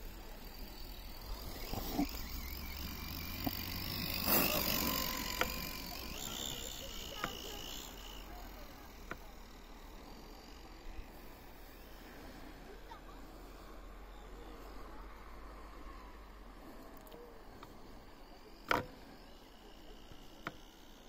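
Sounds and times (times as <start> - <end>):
sharp ticks: 0.0 - 10.7, 17.0 - 21.0
tyres spraying snow: 0.0 - 15.0
electric motor whine: 0.0 - 21.0.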